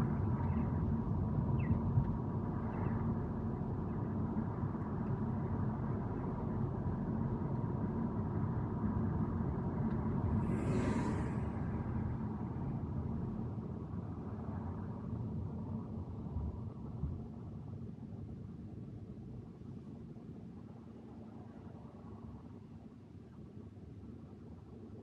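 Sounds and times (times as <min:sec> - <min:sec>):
brief hiss: 0:10.4 - 0:11.8.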